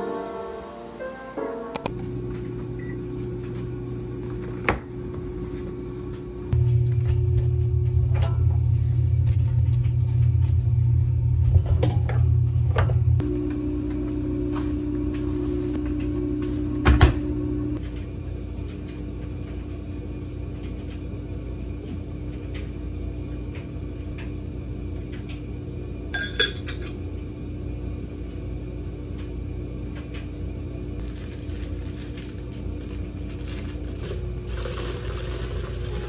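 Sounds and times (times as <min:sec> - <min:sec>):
steady low hum: 0:01.9 - 0:34.5
glass mug clinking: 0:26.2 - 0:26.8.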